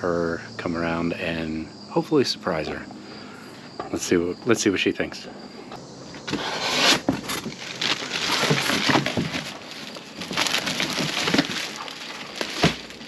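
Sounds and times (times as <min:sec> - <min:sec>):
cardboard flaps scraping: 0:06.2 - 0:13.0
plastic wrap crinkling: 0:06.8 - 0:13.0.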